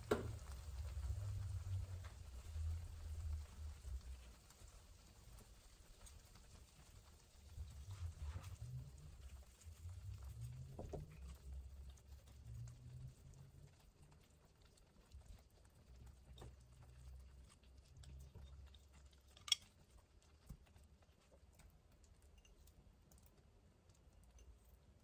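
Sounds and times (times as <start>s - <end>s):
faint low hum: 0.0s - 25.0s
chopsticks clicking on ceramic: 19.3s - 19.8s.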